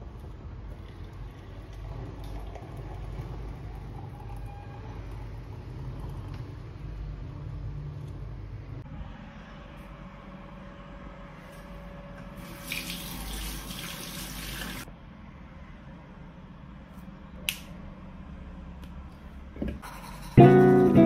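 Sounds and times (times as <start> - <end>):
water pouring into a mug: 0.7 - 6.3, 12.4 - 14.9.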